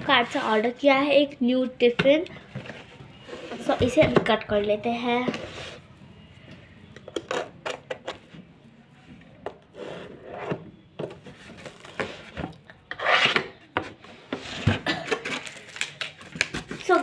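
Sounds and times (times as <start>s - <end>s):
scraping on cardboard: 11.3s - 13.5s.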